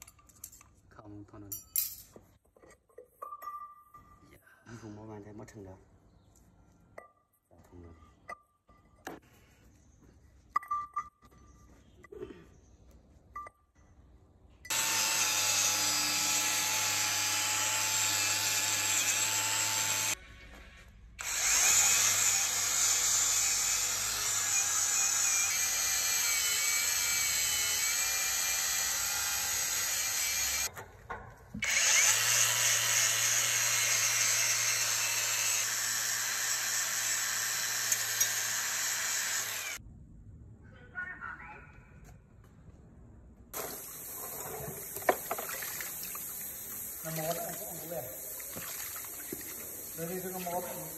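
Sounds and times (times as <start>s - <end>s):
angle grinder grinding metal: 14.7s - 20.2s, 21.2s - 30.7s, 31.6s - 39.8s.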